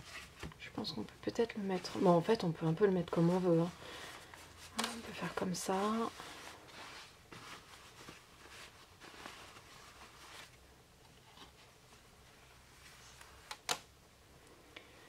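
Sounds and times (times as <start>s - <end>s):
cloth pouch rustling: 1.7s - 10.6s.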